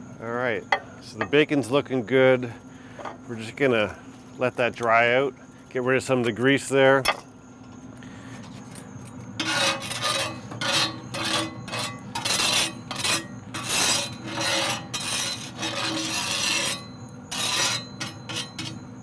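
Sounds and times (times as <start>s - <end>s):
metal spatula scraping griddle: 9.3s - 19.0s.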